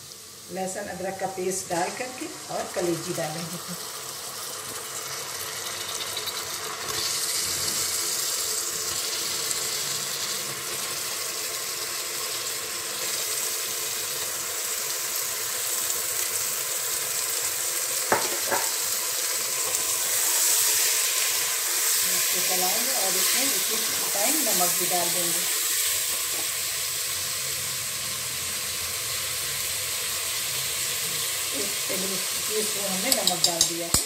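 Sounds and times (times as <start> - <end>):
food sizzling in hot oil: 0.0 - 34.0.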